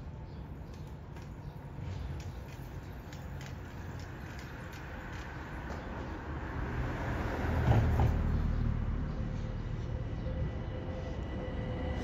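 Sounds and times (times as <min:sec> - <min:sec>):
large vehicle rumbling past: 0:06.0 - 0:12.0.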